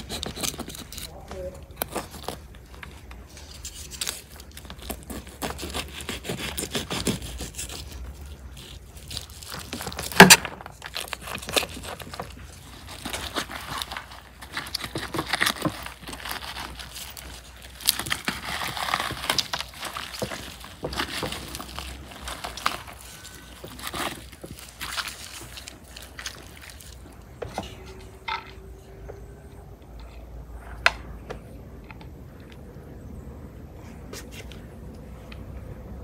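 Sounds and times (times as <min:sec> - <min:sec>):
knife cutting crisp roasted meat: 0:04.7 - 0:12.4.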